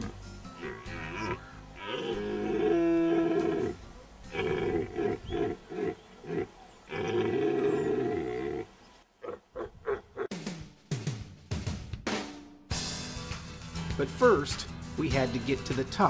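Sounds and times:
red deer stag roaring: 0:00.0 - 0:10.3.

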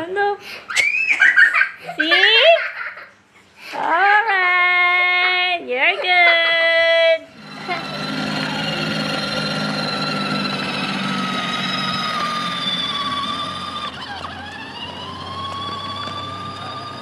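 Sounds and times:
small motor whining: 0:07.3 - 0:17.0.

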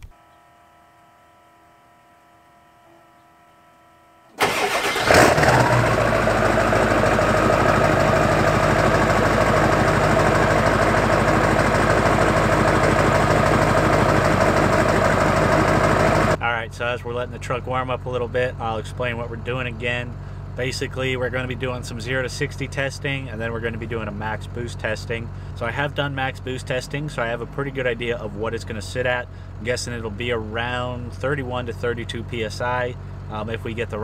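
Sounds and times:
faint steady hum: 0:00.0 - 0:04.4, 0:16.4 - 0:34.0
diesel engine starting and idling: 0:04.4 - 0:34.0.

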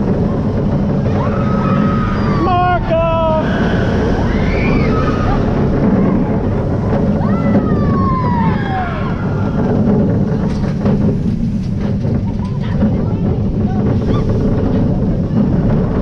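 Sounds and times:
roller coaster running: 0:00.0 - 0:16.0
wind rushing over camera: 0:00.0 - 0:16.0
riders whooping: 0:00.2 - 0:10.4.

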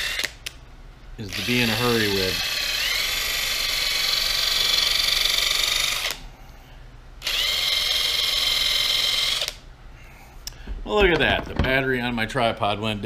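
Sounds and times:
cordless drill whine: 0:00.0 - 0:00.3, 0:01.3 - 0:06.2, 0:07.2 - 0:09.6.

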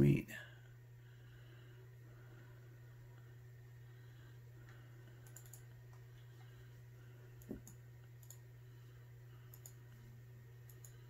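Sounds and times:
steady low hum: 0:00.0 - 0:11.0
computer mouse clicks: 0:05.1 - 0:06.5, 0:07.4 - 0:08.5, 0:09.5 - 0:10.0, 0:10.6 - 0:11.0.

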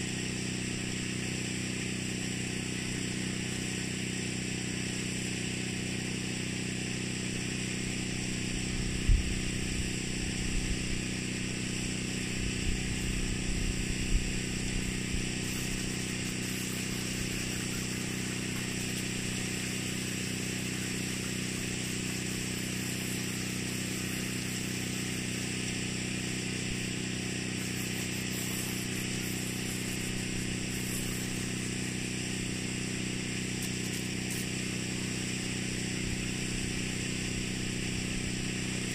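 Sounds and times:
motor droning: 0:00.0 - 0:38.9.

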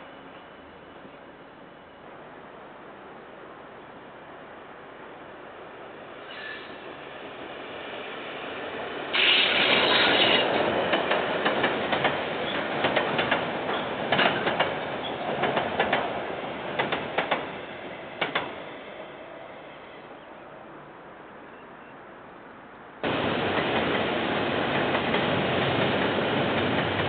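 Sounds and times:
train wheels rushing on rails: 0:06.2 - 0:19.7, 0:23.0 - 0:27.0
wheels clacking over rail joints: 0:09.1 - 0:17.6, 0:18.2 - 0:18.7, 0:23.0 - 0:27.0.

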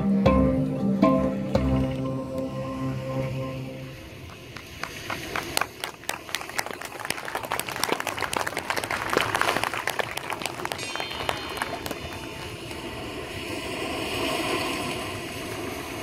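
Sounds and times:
audience applause: 0:04.2 - 0:13.0.

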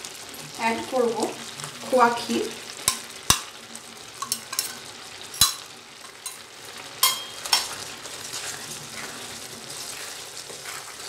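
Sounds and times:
low sizzle: 0:00.0 - 0:11.0
spoon scraping a pan: 0:02.8 - 0:03.6, 0:04.2 - 0:11.0.

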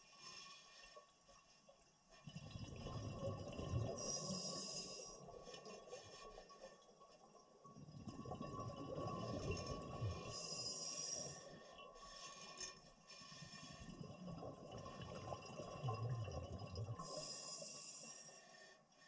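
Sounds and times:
regulator inhale hiss: 0:04.0 - 0:05.2, 0:10.3 - 0:11.6, 0:17.0 - 0:18.8.

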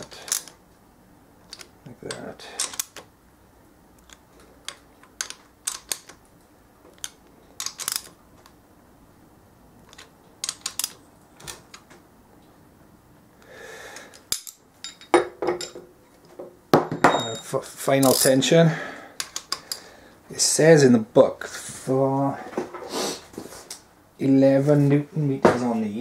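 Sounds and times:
ratchet wrench clicking: 0:07.0 - 0:08.1.

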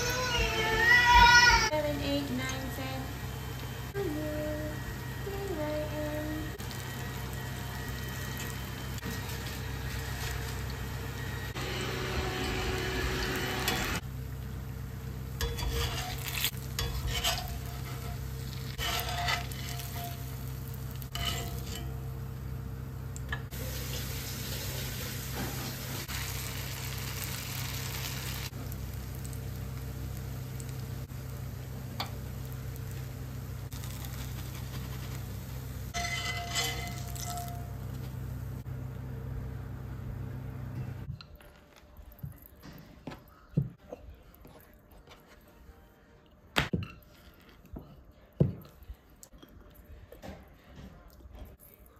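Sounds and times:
food sizzling in oil: 0:06.4 - 0:22.7, 0:23.5 - 0:38.6
strainer scraping and clinking pan: 0:15.4 - 0:20.4, 0:21.0 - 0:22.0, 0:35.9 - 0:37.7.

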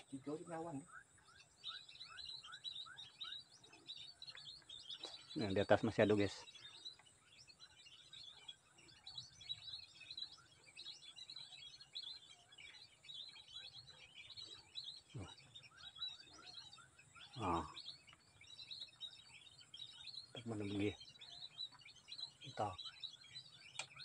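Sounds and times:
high-pitched bird chirping: 0:00.0 - 0:24.0
low falling bird calls: 0:00.0 - 0:24.0.

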